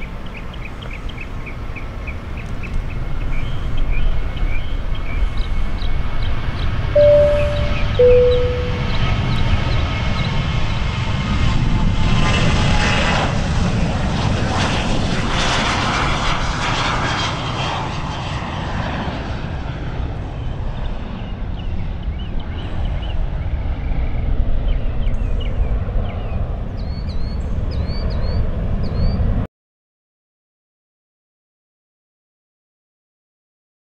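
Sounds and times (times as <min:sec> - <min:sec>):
jet airliner engines passing: 0:00.0 - 0:29.5.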